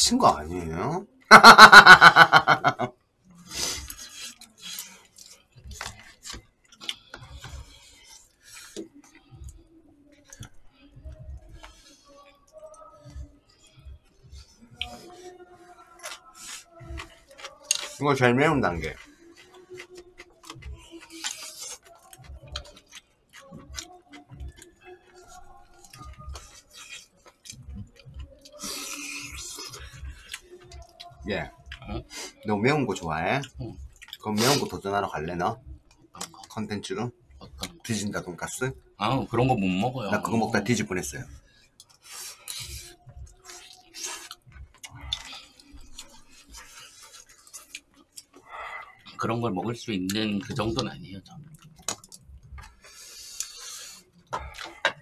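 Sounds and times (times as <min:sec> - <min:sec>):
person laughing: 0:01.3 - 0:02.9
chewing: 0:03.3 - 0:34.8, 0:35.8 - 0:38.9, 0:40.2 - 0:55.0.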